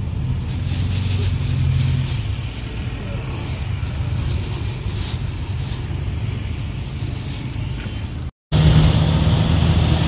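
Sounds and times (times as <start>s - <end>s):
minibus engine and road rumble: 0.0s - 10.0s.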